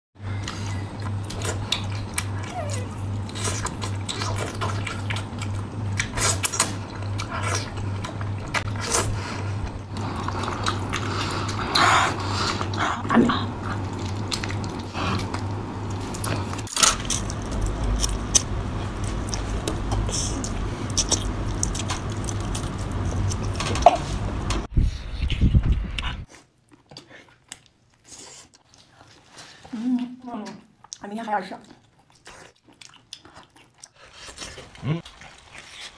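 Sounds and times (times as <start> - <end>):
steady low hum: 0.2 - 26.3
wet biting and chewing: 0.4 - 24.3, 31.7 - 35.9.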